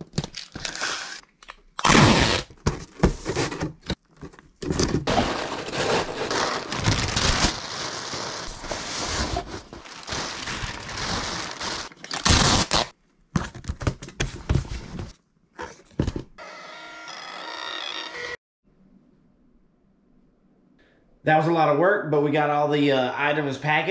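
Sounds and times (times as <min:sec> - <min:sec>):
packing paper crumpling: 0:05.1 - 0:12.9.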